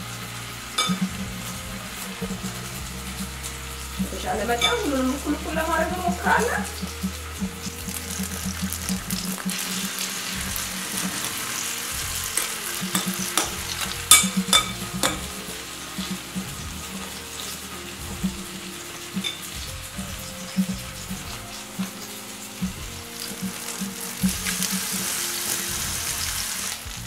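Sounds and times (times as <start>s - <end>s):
patties sizzling in a frying pan: 0.0s - 27.0s.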